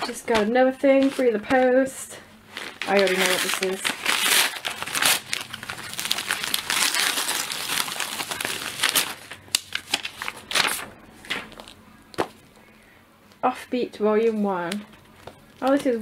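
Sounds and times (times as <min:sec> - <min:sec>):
packaging rustling and crackling: 0:02.5 - 0:12.6
paper mailer tearing: 0:02.6 - 0:11.8.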